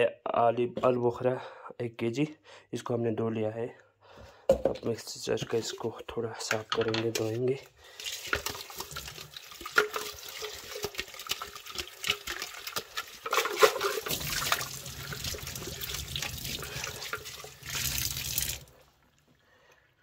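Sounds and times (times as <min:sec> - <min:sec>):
plastic jar knocking and clicking: 0:06.4 - 0:07.3
water running from tap: 0:07.9 - 0:18.8.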